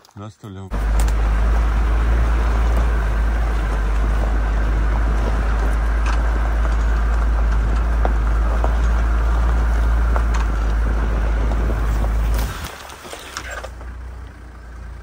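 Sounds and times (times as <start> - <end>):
tyres on gravel: 0.0 - 15.0
vehicle engine: 0.7 - 15.0
wind rumble on microphone: 2.4 - 12.7.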